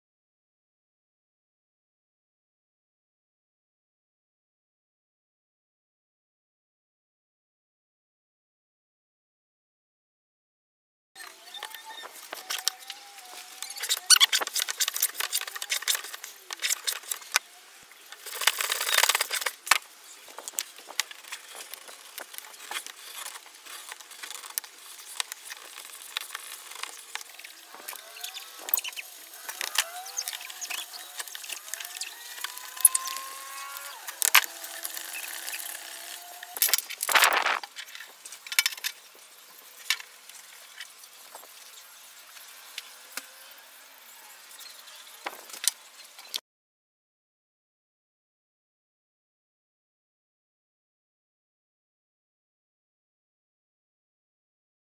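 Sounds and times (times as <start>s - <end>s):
small metal parts clicking: 20.5s - 39.0s.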